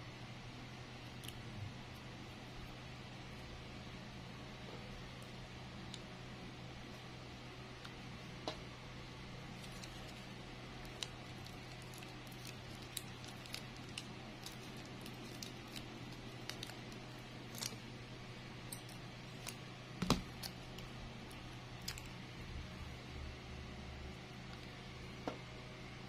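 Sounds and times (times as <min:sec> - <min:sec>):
steady low hum: 0:00.0 - 0:26.0
plastic strip crinkling: 0:09.5 - 0:17.9.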